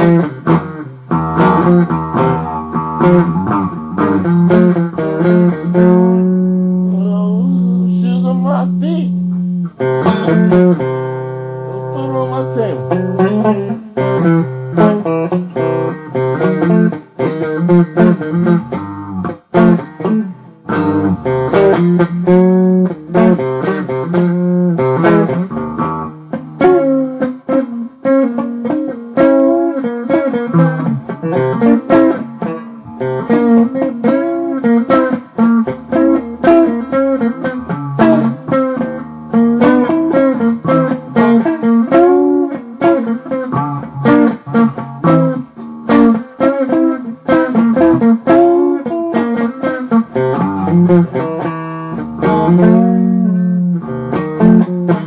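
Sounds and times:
blues guitar music: 0.0 - 55.0.

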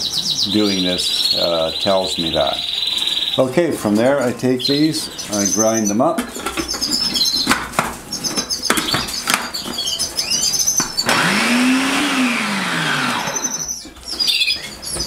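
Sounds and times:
canaries chirping: 0.0 - 15.0
food processor motor humming: 11.0 - 13.7.

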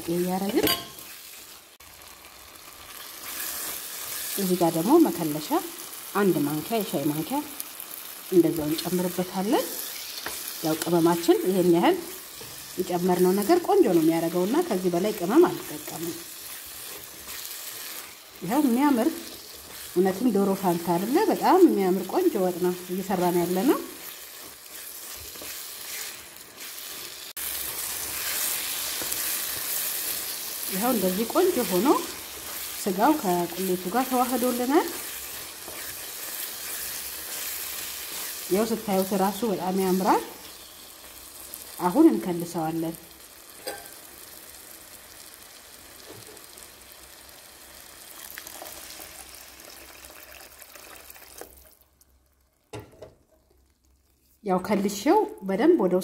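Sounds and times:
meat sizzling in a pan: 0.0 - 51.8
stew simmering: 9.9 - 42.2, 43.2 - 54.4
wooden spatula stirring: 23.1 - 39.0
water pouring into a stew pan: 48.3 - 51.9.

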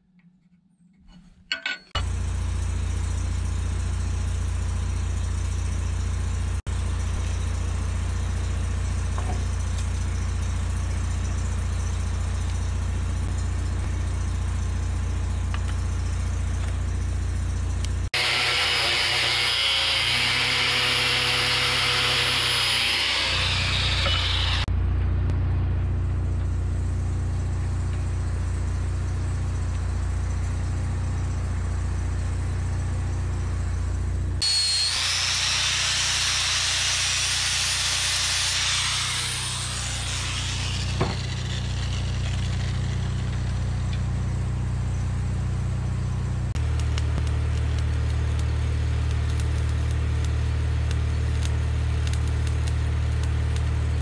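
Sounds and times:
engine humming: 2.0 - 54.0
harsh hiss of metal being worked: 34.9 - 43.0.

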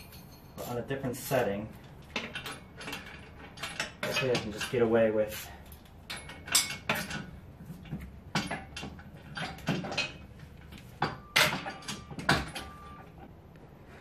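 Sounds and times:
metal brackets clinking: 0.0 - 13.0
metallic ringing clank: 6.0 - 7.4, 10.9 - 13.0.

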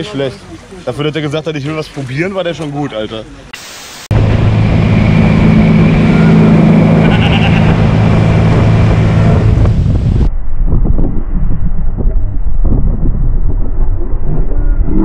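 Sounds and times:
rushing wake water: 0.0 - 10.3
speedboat engine hum: 4.1 - 10.3.

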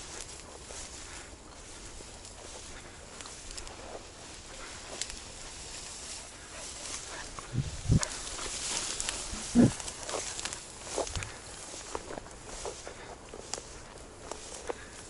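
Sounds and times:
grass rustling underfoot: 0.0 - 15.0
dog low-pitched sounds: 9.2 - 9.9.

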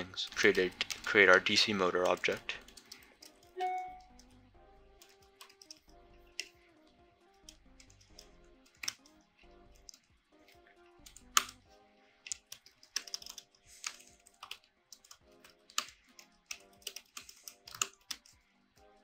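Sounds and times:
faint background music: 0.0 - 19.0.

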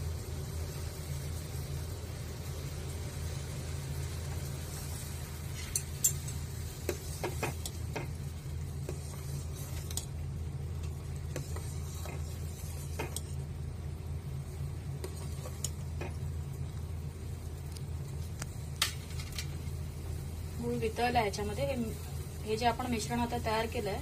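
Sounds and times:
steady low hum: 0.0 - 24.0
metal ladle stirring a pot: 8.8 - 10.2, 11.2 - 13.5.

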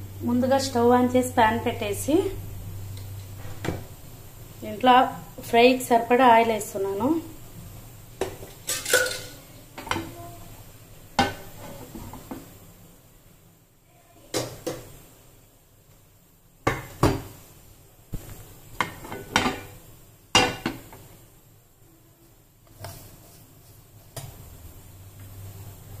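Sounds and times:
cookware and utensils clinking: 8.2 - 10.2, 11.2 - 12.4, 18.8 - 21.0.

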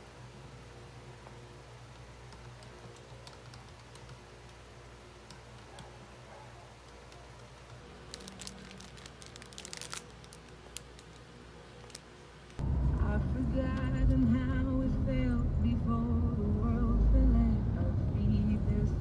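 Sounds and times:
light keyboard typing: 1.9 - 8.4
plastic bag crinkling: 7.9 - 12.6.

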